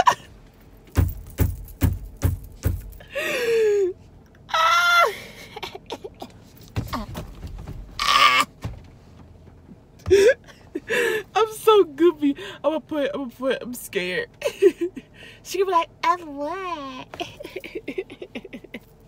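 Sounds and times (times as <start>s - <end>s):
girl laughing hard: 0.0s - 0.3s, 4.8s - 6.3s
low thumps: 0.9s - 3.0s.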